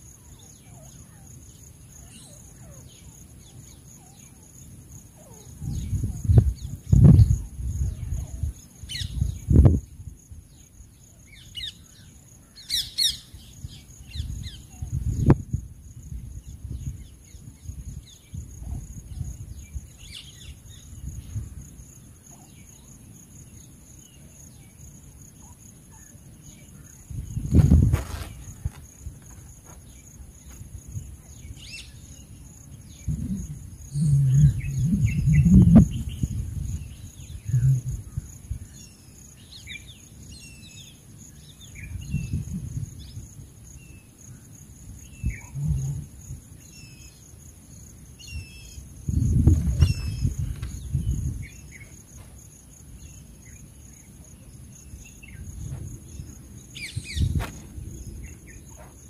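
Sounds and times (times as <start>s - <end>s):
high insect drone: 0.0s - 59.0s
low rumbling: 32.9s - 38.3s, 45.3s - 46.2s.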